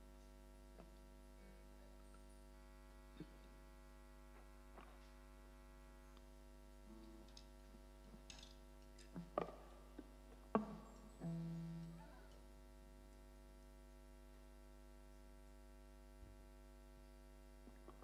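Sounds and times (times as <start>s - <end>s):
sound system mains hum: 0.0s - 18.0s
faint clicks and knocks: 7.0s - 12.4s
soft tone: 10.6s - 12.4s.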